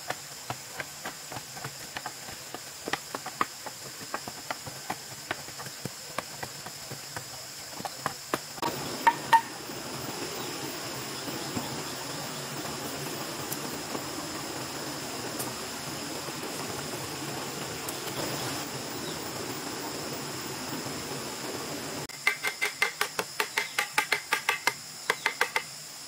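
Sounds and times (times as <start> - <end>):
bamboo poles tamping soil: 0.0 - 9.6, 22.1 - 25.7
insects buzzing: 0.0 - 26.0.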